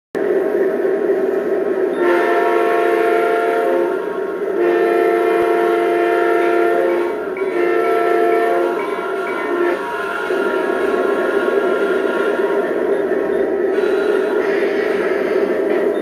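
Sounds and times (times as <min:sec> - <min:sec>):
multi-chime air horn blasts: 0:04.6 - 0:09.8.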